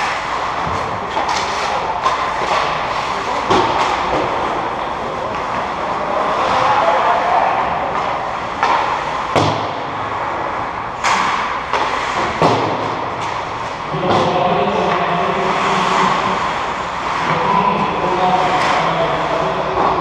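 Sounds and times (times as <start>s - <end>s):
hockey sticks and puck knocks: 0.0s - 6.8s, 7.8s - 10.0s, 11.0s - 17.4s, 18.2s - 20.0s
skates scraping ice: 0.0s - 20.0s.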